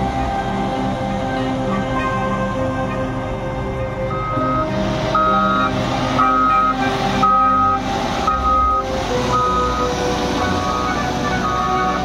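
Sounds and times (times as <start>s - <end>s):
background music: 0.0s - 12.0s
reversing alarm beeping: 4.0s - 12.0s.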